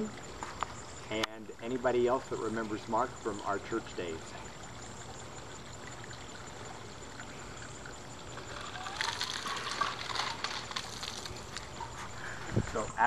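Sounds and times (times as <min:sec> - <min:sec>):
water poured and splashing: 0:02.1 - 0:12.2.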